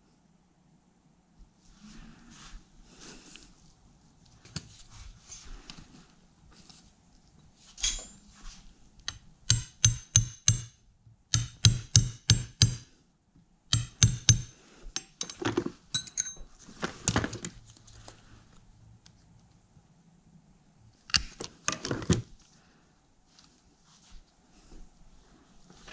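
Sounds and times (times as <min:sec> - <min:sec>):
tools rattling: 0:07.8 - 0:08.3, 0:15.0 - 0:17.6.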